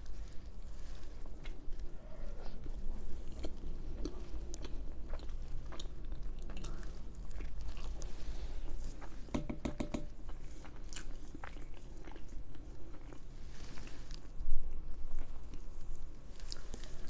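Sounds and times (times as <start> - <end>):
food crunching: 0.0 - 9.3, 10.1 - 17.0
person chewing food: 0.0 - 17.0.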